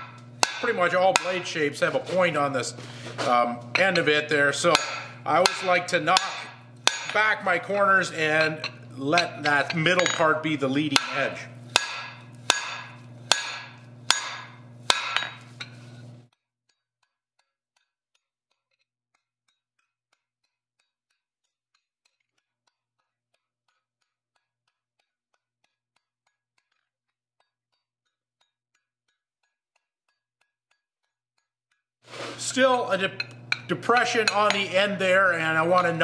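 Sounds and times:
hammer striking metal on anvil: 0.0s - 2.2s, 3.3s - 15.8s, 32.6s - 36.0s
steady low hum: 0.0s - 16.2s, 32.1s - 36.0s.

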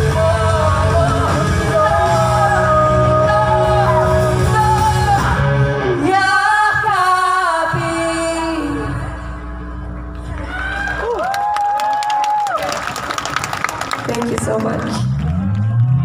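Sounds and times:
rock band playing live: 0.0s - 6.4s
woman singing: 0.0s - 9.2s.

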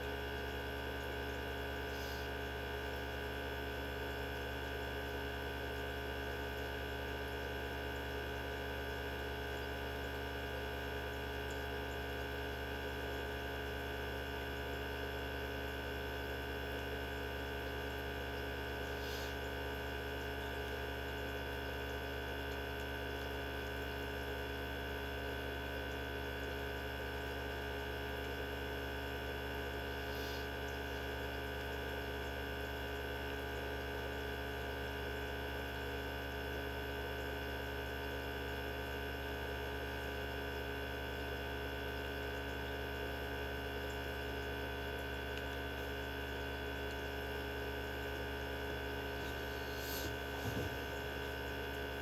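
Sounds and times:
centrifuge motor hum and whine: 0.0s - 52.0s.

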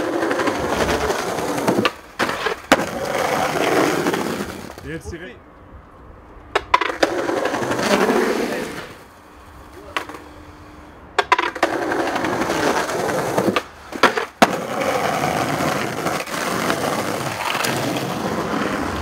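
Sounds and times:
loud skateboard hits: 0.0s - 4.8s, 11.2s - 19.0s
skateboard clacks: 0.0s - 4.8s, 6.5s - 9.0s, 9.8s - 10.3s, 11.1s - 19.0s
skateboard wheels rolling on asphalt: 0.0s - 19.0s.

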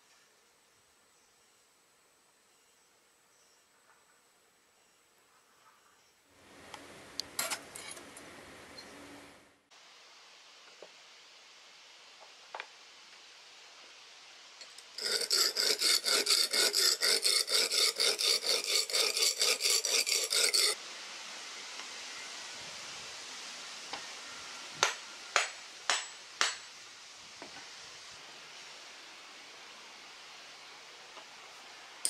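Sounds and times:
hatchet on sharpening stone: 15.0s - 20.8s.

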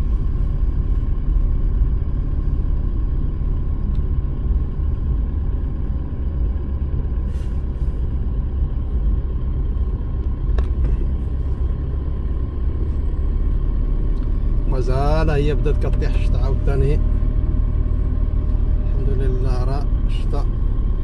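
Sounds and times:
car driving on wet road: 0.0s - 21.0s.

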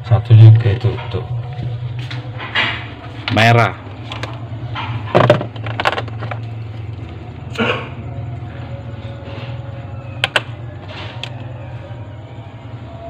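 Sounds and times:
low hum: 0.0s - 13.0s
clicks and knocks of handling wires: 4.1s - 6.5s.

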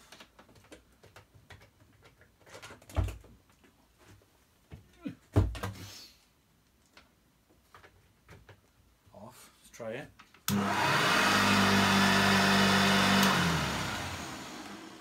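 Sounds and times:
vacuum cleaner handling clicks: 10.5s - 10.9s, 13.0s - 14.0s.

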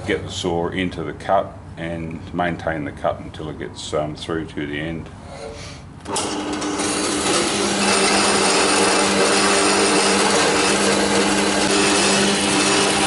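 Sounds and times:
band saw motor hum: 6.0s - 13.0s.

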